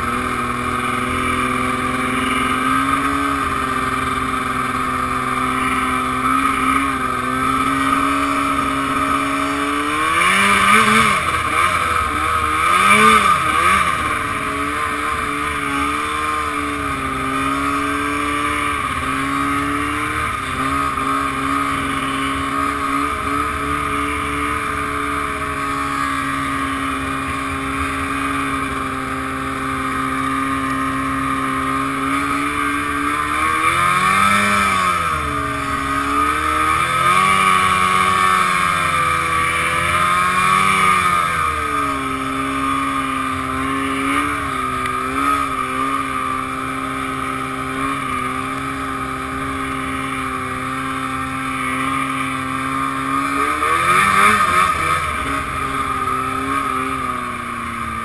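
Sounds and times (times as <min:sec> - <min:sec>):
snowmobile engine revving: 0:00.0 - 0:58.0.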